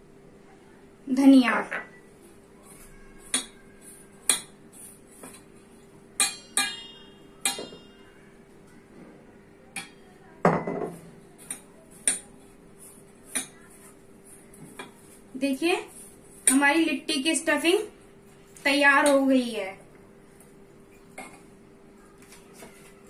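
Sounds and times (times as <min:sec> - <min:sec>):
bowls clinking and knocking: 0:06.2 - 0:08.1.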